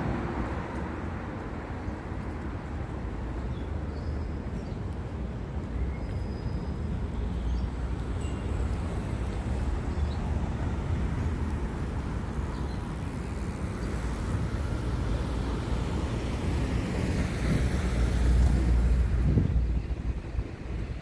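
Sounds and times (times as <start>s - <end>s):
traffic on a road: 0.0s - 21.0s.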